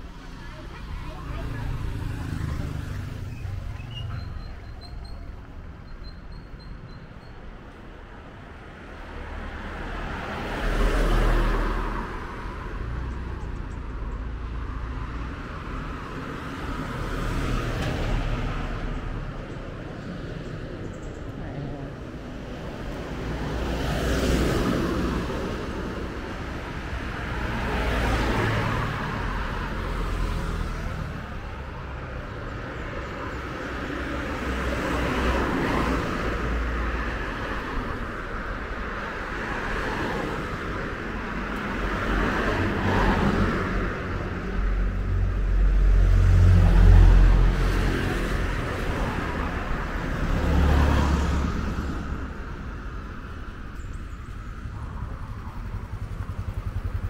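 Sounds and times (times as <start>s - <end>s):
vehicles passing: 0.0s - 57.0s
heavy low rumble of vehicle: 12.0s - 57.0s.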